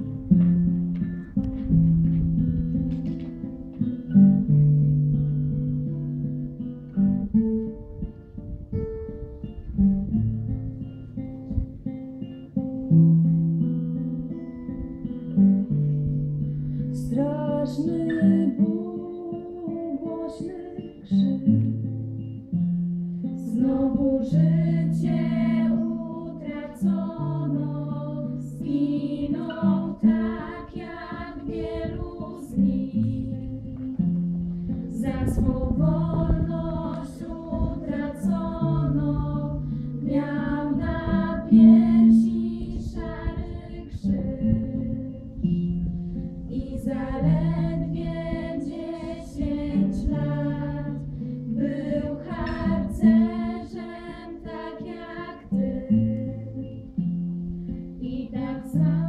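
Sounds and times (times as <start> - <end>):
acoustic guitar: 0.0 - 59.0
women singing together: 17.0 - 21.9, 23.3 - 57.2, 57.8 - 59.0.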